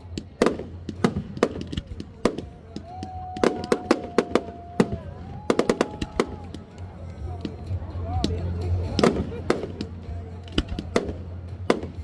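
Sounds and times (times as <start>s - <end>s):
fireworks bangs and crackles: 0.0s - 12.0s.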